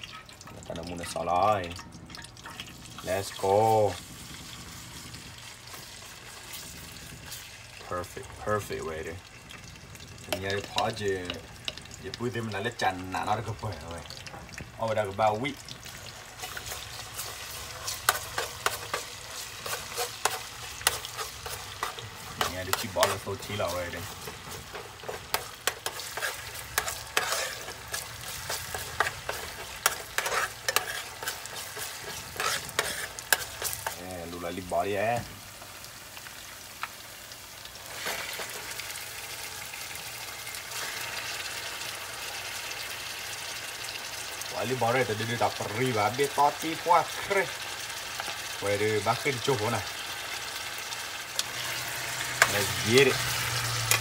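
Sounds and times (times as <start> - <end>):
food sizzling in a hot pan: 0.0 - 54.0
utensil clacking against pan: 16.4 - 34.0.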